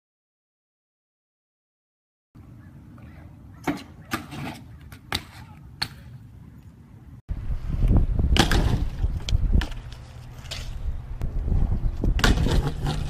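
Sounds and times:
bike wheels rolling on concrete: 3.5 - 13.0
bike hitting the ground: 8.2 - 10.8, 12.0 - 13.0.

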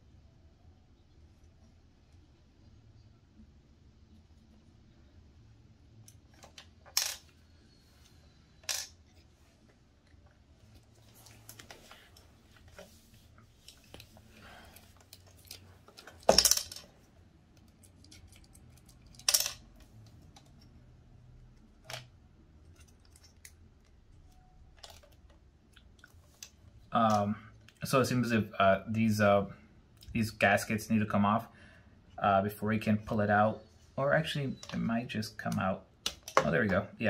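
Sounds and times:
faint clicks and scrapes: 6.0 - 16.3, 21.8 - 26.8.

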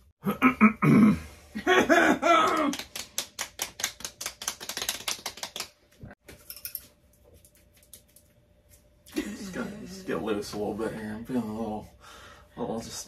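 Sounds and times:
hand slapping bald head: 2.4 - 5.8.

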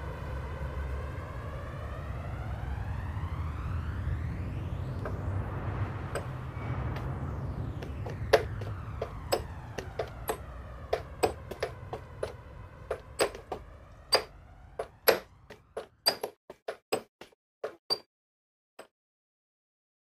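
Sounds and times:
low hum: 0.0 - 16.4
sharp clicks and knocks: 7.8 - 18.0.

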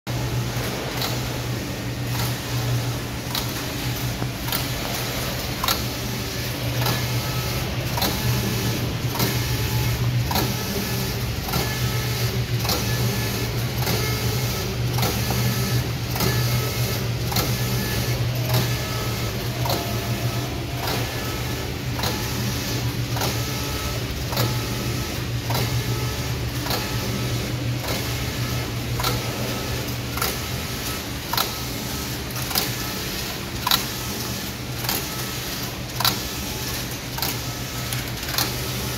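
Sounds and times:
knitting machine hum: 0.1 - 38.9.

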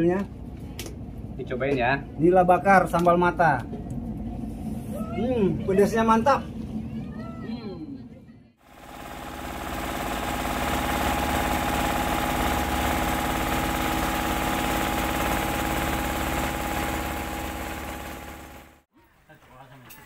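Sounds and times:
motorboat engine running: 8.6 - 18.8.

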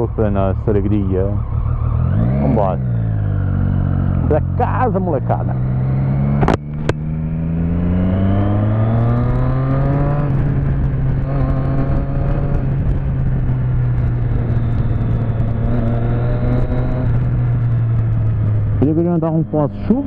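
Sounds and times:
motorcycle engine accelerating: 0.0 - 20.0
wind rush on microphone: 5.7 - 20.0.

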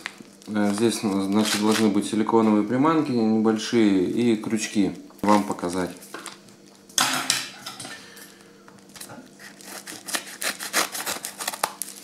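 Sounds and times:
plastic mailer rustling: 0.0 - 2.1.

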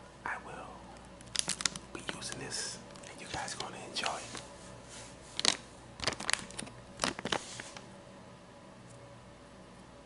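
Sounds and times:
plastic pouch crinkling: 1.2 - 4.5, 5.3 - 7.8.

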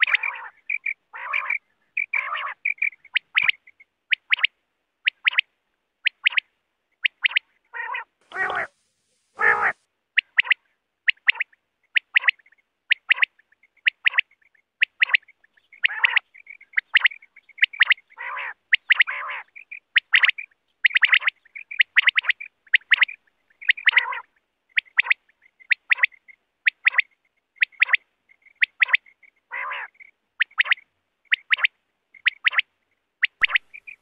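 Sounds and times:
quail calling: 0.0 - 5.4, 6.0 - 8.8, 9.4 - 34.0.

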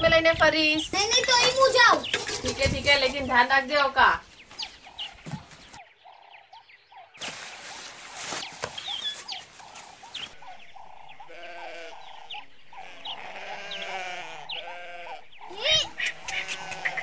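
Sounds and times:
sheep bleating: 10.3 - 17.0.

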